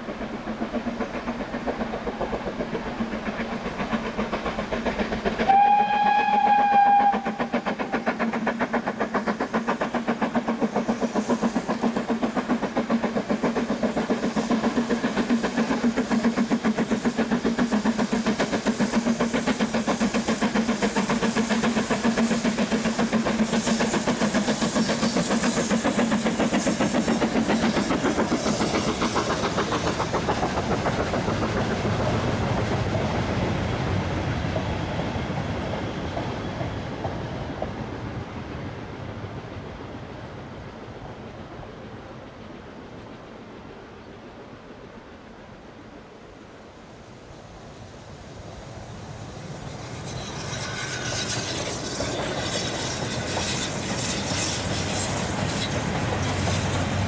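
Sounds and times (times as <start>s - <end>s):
steam locomotive exhaust beating: 0.0s - 45.2s, 47.1s - 57.0s
steam whistle blast: 5.4s - 7.5s.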